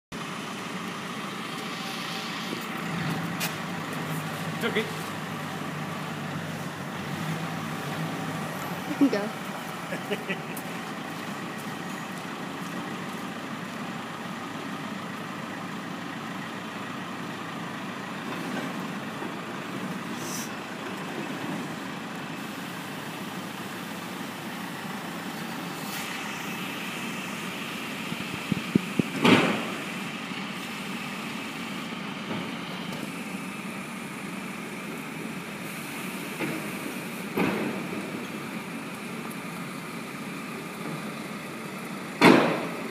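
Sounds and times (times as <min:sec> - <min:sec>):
diesel engine running: 0:00.1 - 0:42.9
thump: 0:42.2 - 0:42.7.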